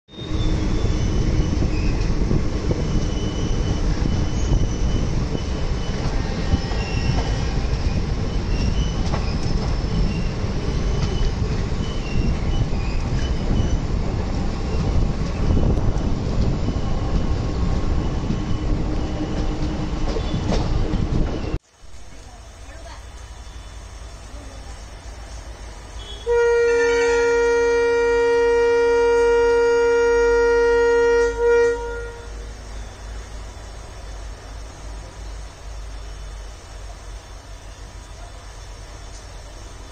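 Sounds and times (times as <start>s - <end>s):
high-pitched wheel squeal: 0.1s - 13.9s
train wheels rumbling on rails: 0.1s - 39.9s.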